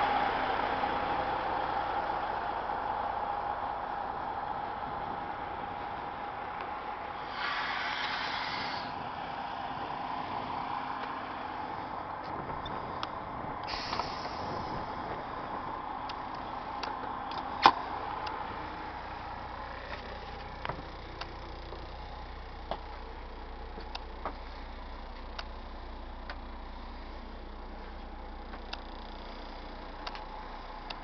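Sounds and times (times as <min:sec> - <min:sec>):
air hissing from bus air system: 0:07.2 - 0:09.0, 0:13.6 - 0:15.1.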